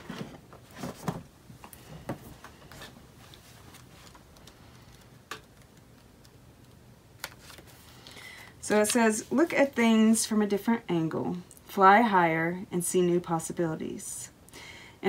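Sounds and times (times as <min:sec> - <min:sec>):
pages rustling: 0:00.0 - 0:06.4, 0:07.2 - 0:08.2.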